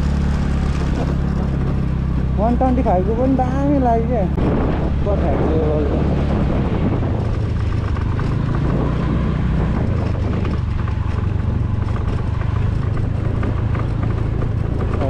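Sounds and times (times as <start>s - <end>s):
motor scooter engine running: 0.0s - 15.0s
light rattles from rough ground: 5.0s - 15.0s.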